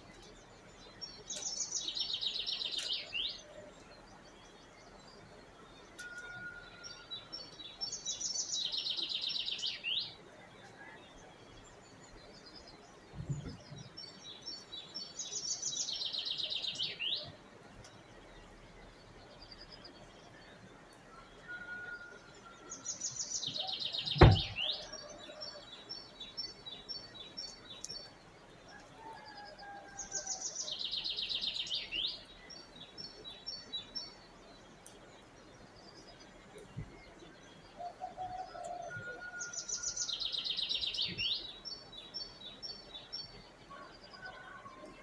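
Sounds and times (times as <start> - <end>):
soft bird calls: 0.0 - 45.0
songbird singing trills: 0.0 - 45.0
sharp knock: 24.2 - 24.6.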